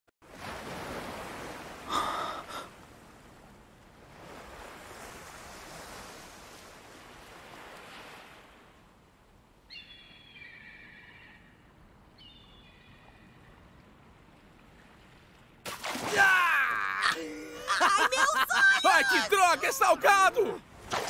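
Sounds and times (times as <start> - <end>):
sea waves on sandy shore: 0.2 - 9.0, 14.0 - 21.0.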